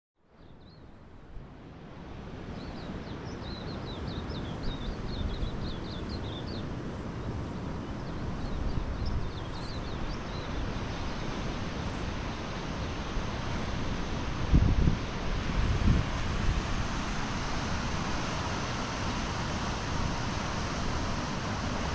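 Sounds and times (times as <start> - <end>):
wind and surf rushing: 1.0 - 21.9
finches twittering: 7.9 - 10.6.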